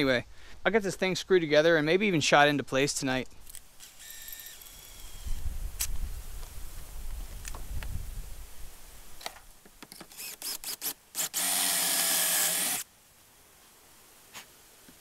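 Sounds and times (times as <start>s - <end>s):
cordless drill boring into wood: 3.8s - 5.4s, 10.0s - 12.8s.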